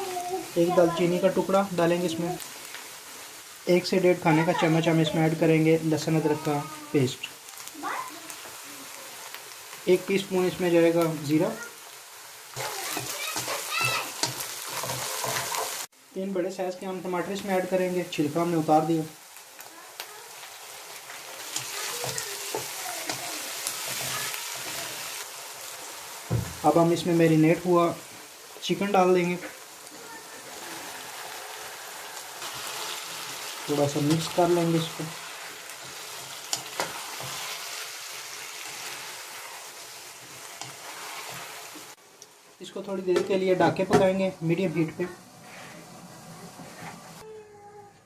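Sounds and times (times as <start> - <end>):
tomatoes sizzling in hot oil: 0.0 - 47.4
spatula scraping a pan: 12.5 - 15.9, 20.8 - 25.2, 34.1 - 41.7.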